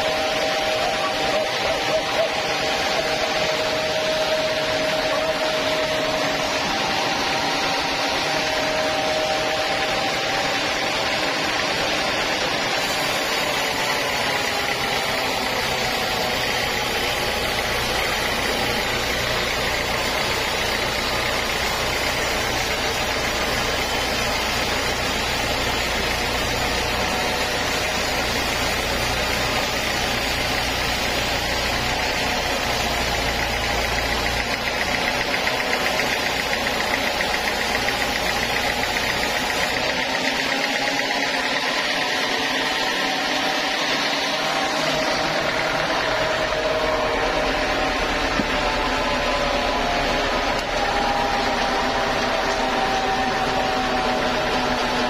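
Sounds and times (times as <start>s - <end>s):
bandsaw blade sawing wood: 0.0s - 55.0s
machine motor noise: 0.0s - 55.0s
low engine hum: 42.6s - 55.0s.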